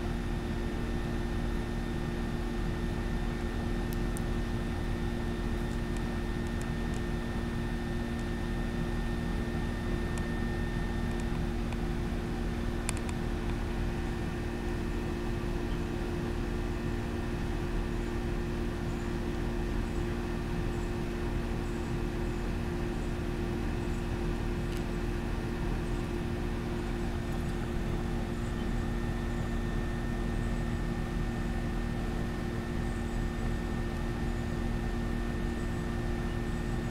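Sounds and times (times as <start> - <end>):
machine hum: 0.0 - 36.9.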